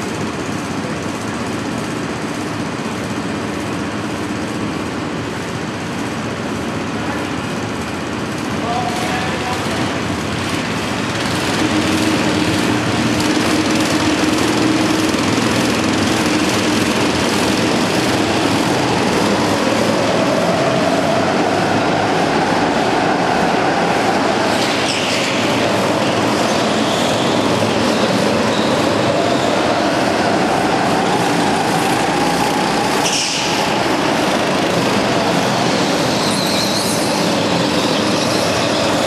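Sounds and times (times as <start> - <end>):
go-kart engines racing: 8.1 - 39.0.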